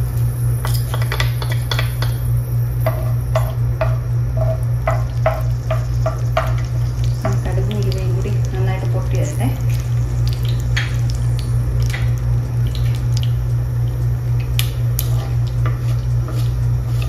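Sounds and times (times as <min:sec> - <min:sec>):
seeds sizzling in oil: 0:00.0 - 0:17.0
steady low hum: 0:00.0 - 0:17.0
spoon scraping clay pot: 0:15.0 - 0:17.0.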